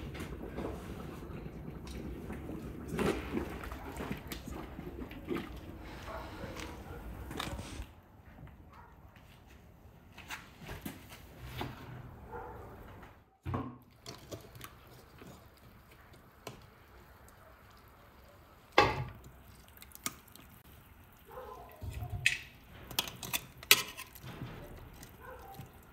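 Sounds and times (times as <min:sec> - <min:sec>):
dripping: 0:00.1 - 0:07.8, 0:13.9 - 0:25.9.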